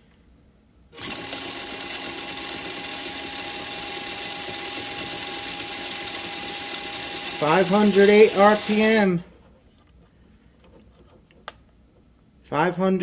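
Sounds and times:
electric motor and gears whining: 1.0s - 9.1s.

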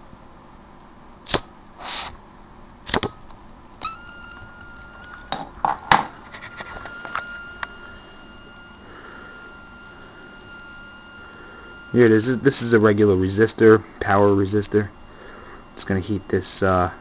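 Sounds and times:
faint high whine: 0.0s - 17.0s
short scrape: 1.8s - 2.2s.

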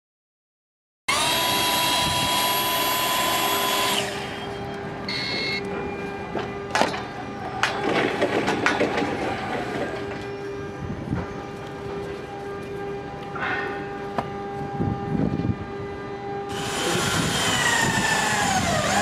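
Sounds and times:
loud steady tonal sound: 1.1s - 19.0s.

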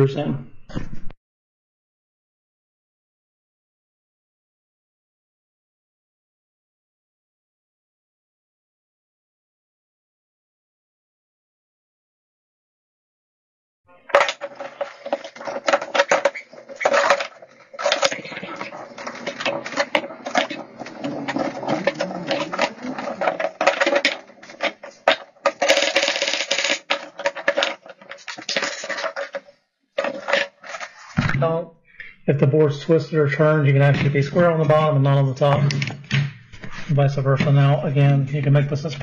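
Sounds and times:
wooden boards and clamps rattling: 14.1s - 31.4s.

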